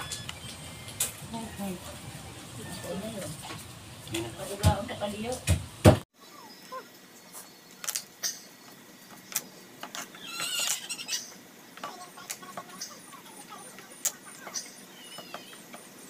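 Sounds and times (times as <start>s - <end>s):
chickens clucking: 10.1s - 15.8s.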